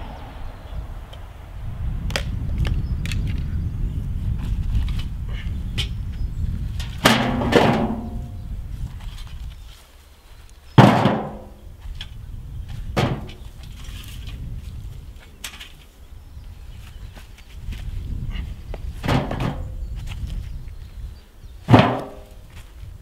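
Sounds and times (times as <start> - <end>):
wooden logs knocking: 6.8 - 8.4, 10.8 - 12.1, 12.9 - 13.7, 19.0 - 19.8, 21.6 - 22.7.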